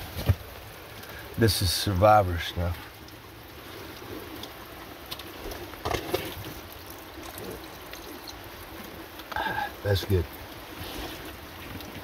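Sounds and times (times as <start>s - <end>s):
water trickling: 0.0s - 12.0s.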